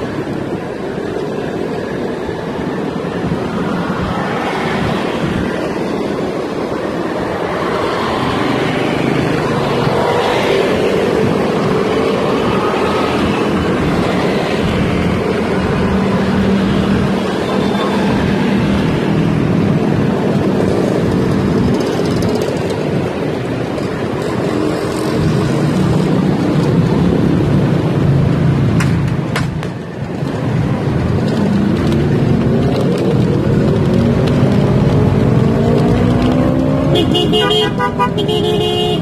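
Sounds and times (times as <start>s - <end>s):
motorcycle and car engines: 0.0s - 39.0s
street traffic: 0.0s - 39.0s.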